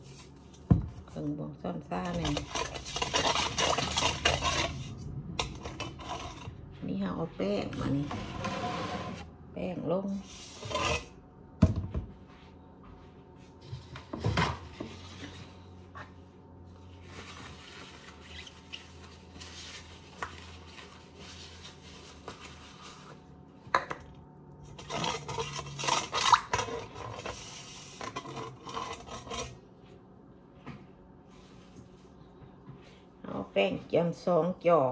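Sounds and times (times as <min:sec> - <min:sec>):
utensils clattering in metal bowl: 0:01.8 - 0:06.6, 0:24.6 - 0:29.6.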